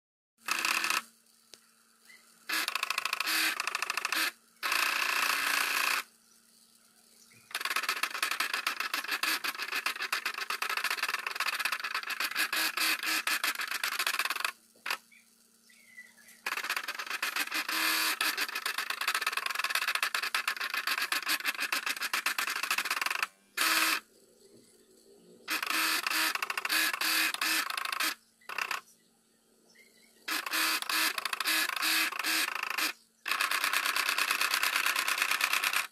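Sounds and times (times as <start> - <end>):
motors buzzing and rattling: 0.4 - 29.0, 30.2 - 35.9.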